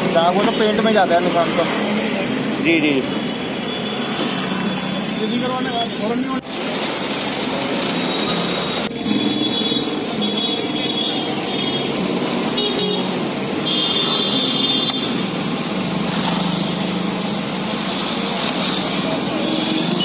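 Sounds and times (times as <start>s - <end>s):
street traffic passing: 0.0s - 20.0s
car horns tooting: 9.0s - 15.2s.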